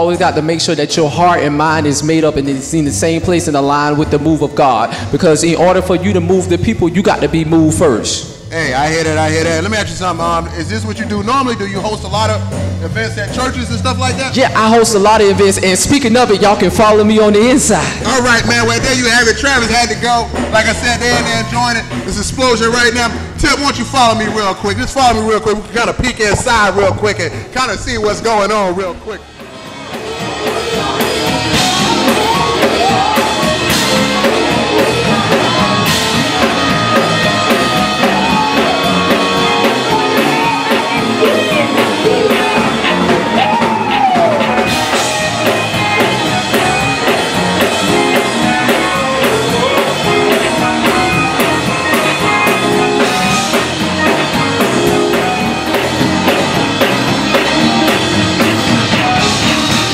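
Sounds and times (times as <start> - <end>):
gospel band playing: 0.0 - 59.9
person singing: 30.0 - 47.1, 47.7 - 55.6.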